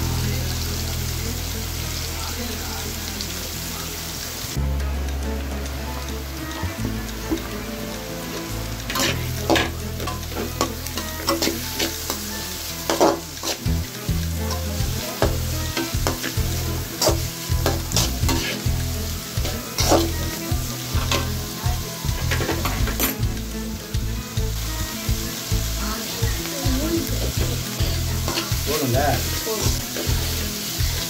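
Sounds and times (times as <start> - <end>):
vegetables sizzling in a pan: 0.0 - 31.0
spatula scraping metal pan: 8.9 - 13.8, 14.5 - 18.7.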